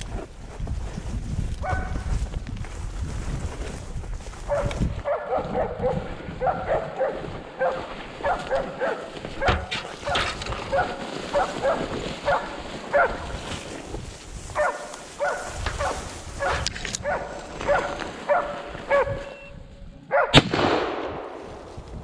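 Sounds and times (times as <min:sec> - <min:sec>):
dog barking: 0:01.6 - 0:01.9, 0:04.5 - 0:13.3, 0:14.6 - 0:19.3, 0:20.1 - 0:20.4.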